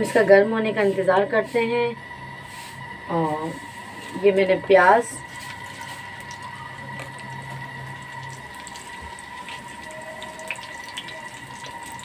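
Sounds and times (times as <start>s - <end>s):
high-pitched whine: 0.0s - 12.0s
onions sizzling in oil: 3.6s - 12.0s.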